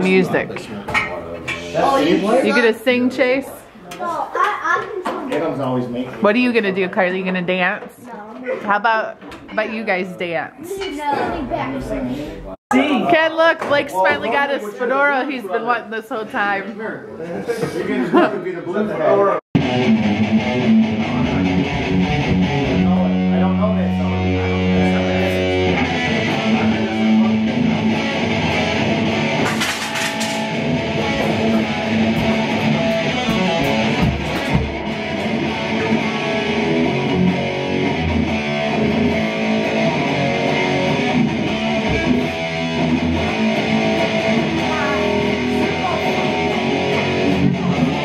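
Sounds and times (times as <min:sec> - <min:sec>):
electric guitar rock jam: 0:19.6 - 0:48.0.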